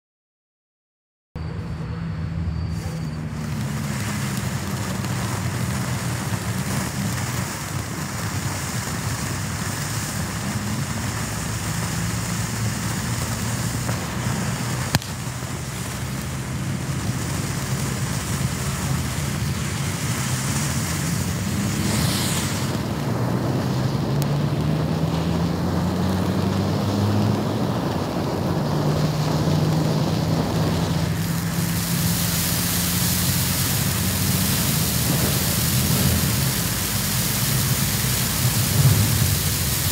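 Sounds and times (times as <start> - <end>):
firework fountain hissing: 2.4 - 39.9
sharp pop: 14.8 - 15.4.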